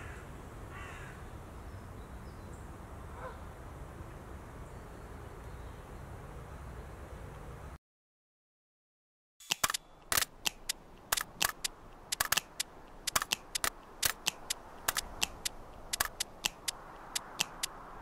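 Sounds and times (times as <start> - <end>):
rapid sharp clicks: 9.4 - 17.8.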